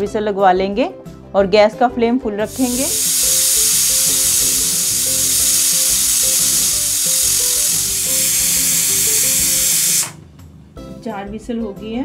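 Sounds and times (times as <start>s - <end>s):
pressure cooker whistling: 2.5s - 10.2s.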